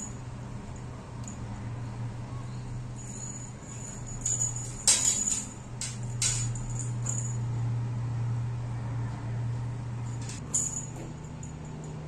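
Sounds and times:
bead chain toy jingling on tile: 3.0s - 7.4s.

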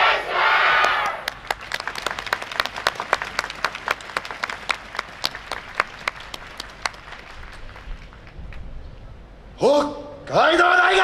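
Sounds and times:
audience applauding: 0.8s - 8.6s.

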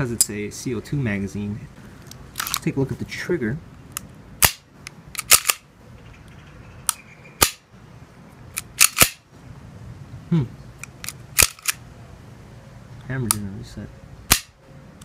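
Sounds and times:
pistol slide and hammer clicks: 3.9s - 5.6s, 6.9s - 7.6s, 8.5s - 9.2s, 10.8s - 11.8s, 14.3s - 15.0s.

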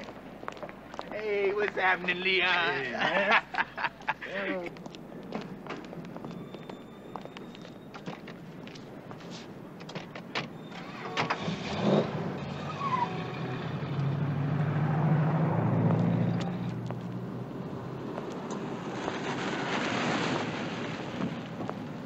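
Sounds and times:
car engine passing: 10.6s - 21.6s.

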